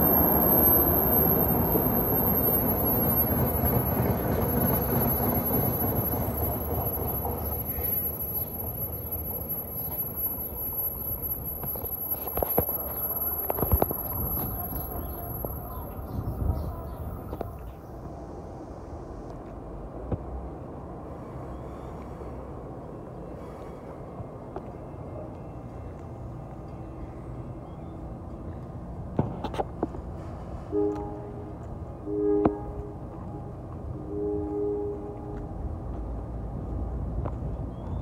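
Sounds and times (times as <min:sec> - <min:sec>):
train wheels rumbling on rails: 0:00.0 - 0:21.5.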